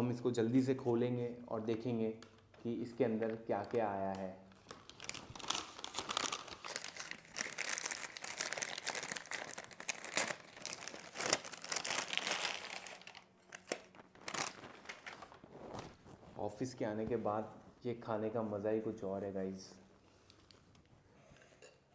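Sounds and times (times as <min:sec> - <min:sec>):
paper crinkling: 0:02.2 - 0:16.4.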